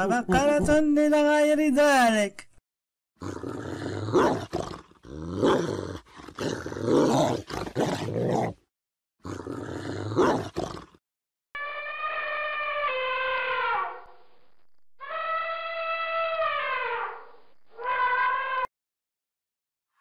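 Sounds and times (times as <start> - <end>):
dog growling and barking: 3.2 - 11.0.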